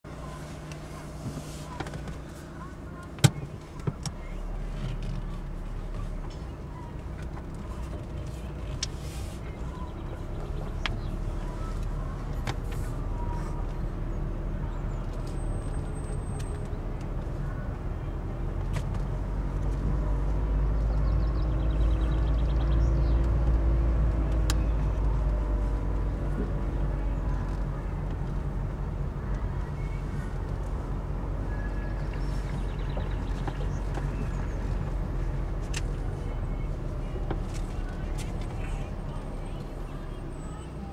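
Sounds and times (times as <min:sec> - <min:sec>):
engine and tyre rumble in car: 0:00.0 - 0:40.9.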